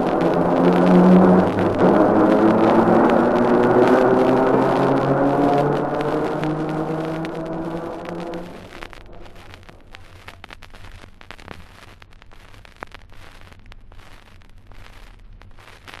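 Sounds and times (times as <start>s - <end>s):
low hum: 0.0s - 9.9s
record surface noise crackle: 0.0s - 16.0s.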